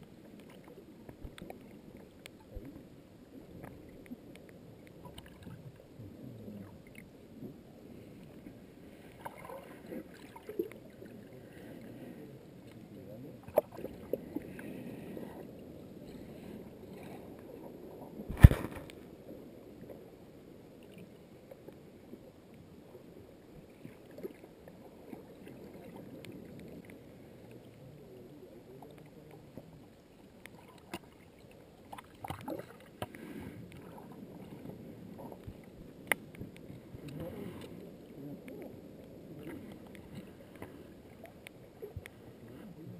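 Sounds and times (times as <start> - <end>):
muffled underwater wash: 0.0 - 42.9
sharp underwater clicks: 18.3 - 19.0, 35.4 - 37.8.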